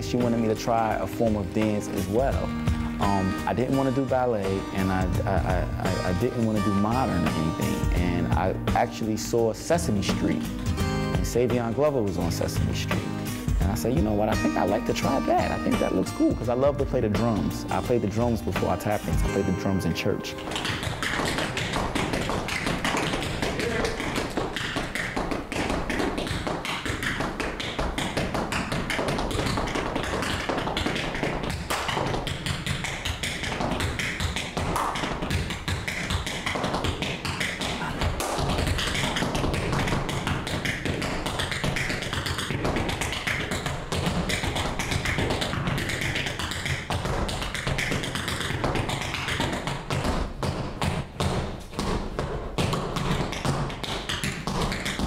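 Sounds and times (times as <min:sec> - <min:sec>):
tap shoes clicking on hard floor: 0:00.0 - 0:09.0, 0:20.0 - 0:55.0.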